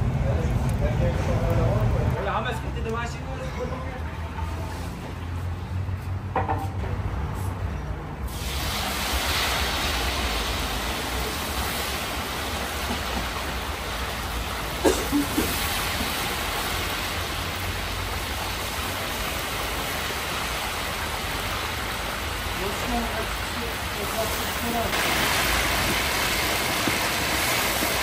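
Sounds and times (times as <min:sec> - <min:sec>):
meat sizzling in hot oil: 0:08.3 - 0:28.0.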